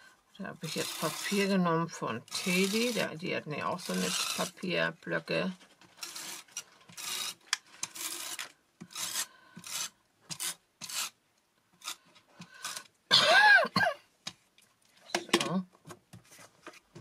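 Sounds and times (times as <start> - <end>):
paper scraping on card: 0.6 - 1.6, 2.3 - 4.7, 5.8 - 11.2.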